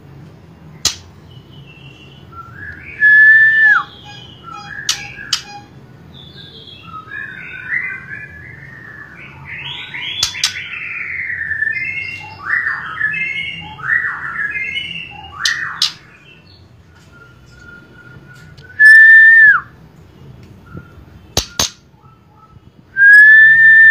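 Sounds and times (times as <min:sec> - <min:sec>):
bird whistle dropping in pitch: 0:03.0 - 0:05.7
bird warbling chirps: 0:03.0 - 0:08.0.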